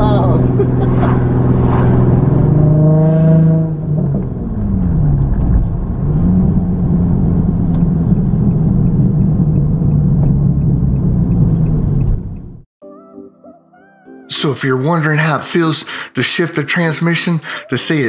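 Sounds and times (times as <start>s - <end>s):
car engine revving through gear change: 0.0s - 12.6s.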